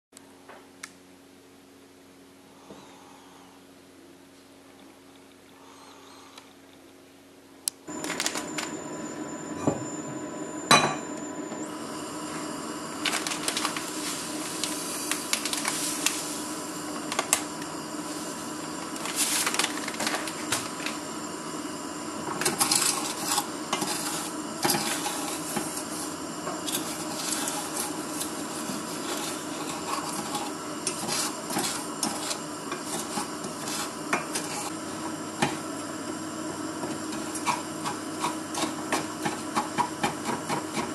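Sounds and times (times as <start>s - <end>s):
wooden spoon scraping saucepan: 22.4s - 34.8s, 36.8s - 40.9s.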